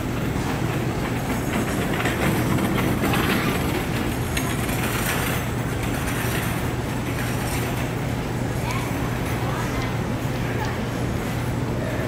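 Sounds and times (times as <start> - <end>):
suitcase wheels rolling on tile: 0.0 - 8.0.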